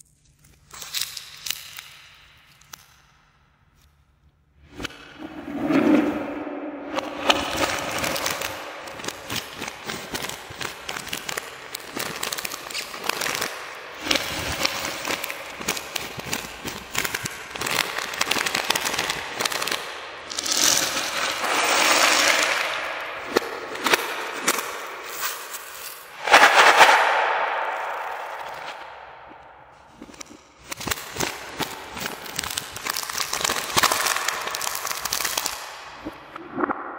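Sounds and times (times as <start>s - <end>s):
scissors cutting plastic: 30.0s - 35.6s.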